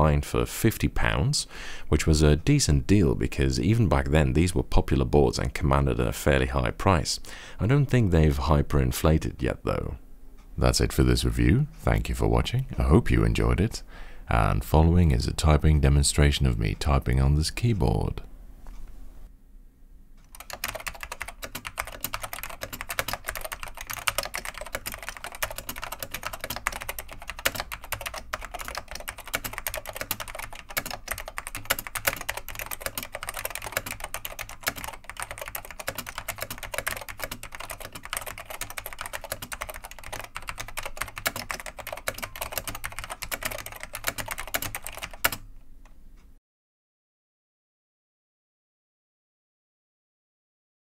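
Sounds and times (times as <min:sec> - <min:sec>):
fast keyboard typing: 0:20.3 - 0:45.4.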